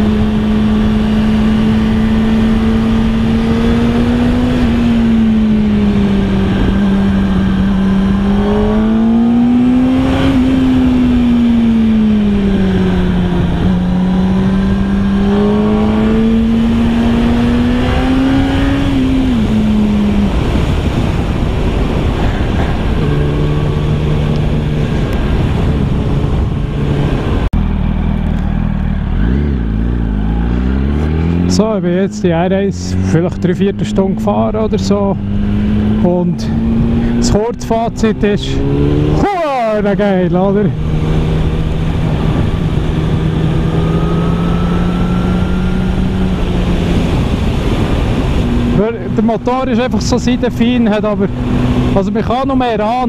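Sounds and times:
motorcycle engine cruising: 0.0 - 53.0
wind rush over camera: 2.9 - 31.7, 40.8 - 49.6.

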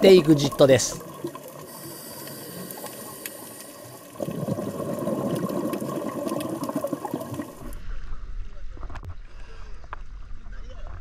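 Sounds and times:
diver exhaling bubbles: 1.1 - 7.8
underwater hiss: 1.6 - 7.8.

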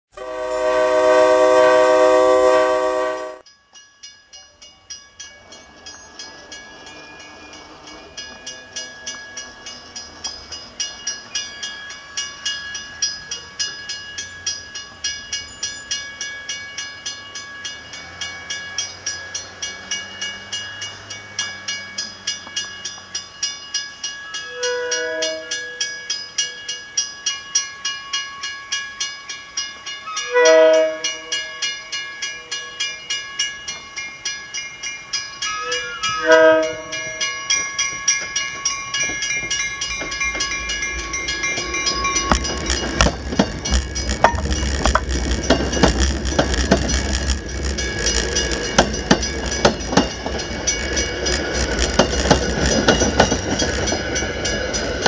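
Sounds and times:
train horn: 0.1 - 3.4, 24.4 - 25.8, 30.2 - 31.6, 35.5 - 37.3
crossing bell ringing: 0.2 - 55.0
train rumble: 4.3 - 26.7, 29.6 - 55.0.

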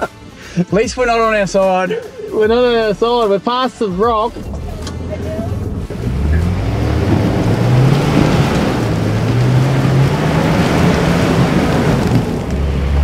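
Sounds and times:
engine running hard at high revs: 4.4 - 13.0
tyres spinning on gravel: 5.5 - 13.0.

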